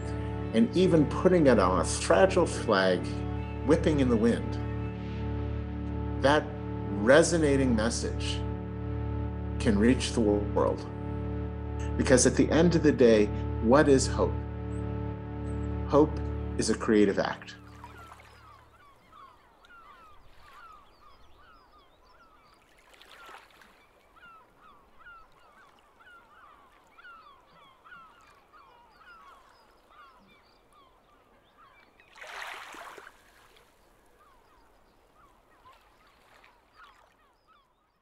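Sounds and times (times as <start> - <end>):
flock of birds calling: 17.5 - 32.0.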